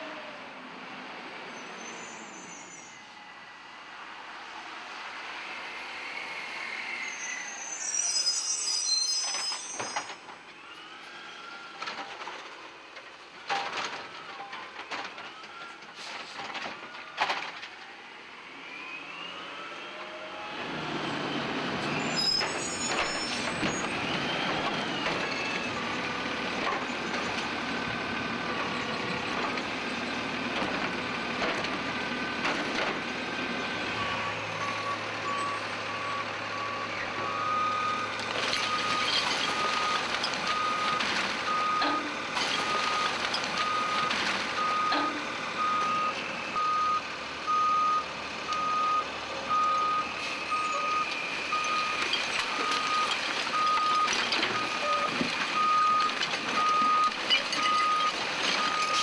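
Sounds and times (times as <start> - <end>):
short high squeals: 1.6 - 3.1, 6.8 - 10.2, 22.0 - 23.9
garbage truck engine: 3.6 - 59.0.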